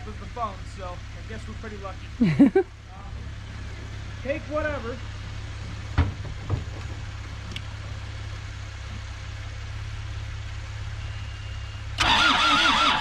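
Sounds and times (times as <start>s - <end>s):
low rumble: 0.0s - 12.0s
knocks: 5.8s - 7.1s
diesel engine starter cranking: 11.2s - 13.0s.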